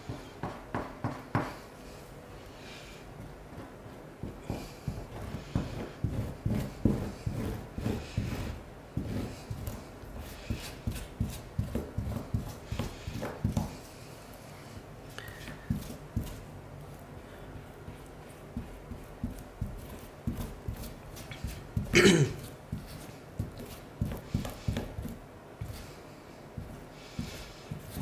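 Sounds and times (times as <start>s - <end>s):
soft knocks and rubbing of grout: 3.2s - 13.8s, 17.5s - 21.9s.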